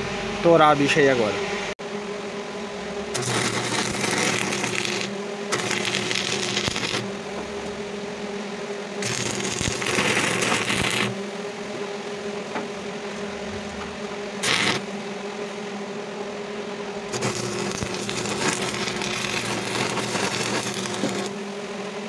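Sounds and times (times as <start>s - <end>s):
welding machine low hum: 2.5s - 15.8s, 16.8s - 22.0s
welding arc crackling: 3.0s - 14.9s, 17.0s - 21.6s.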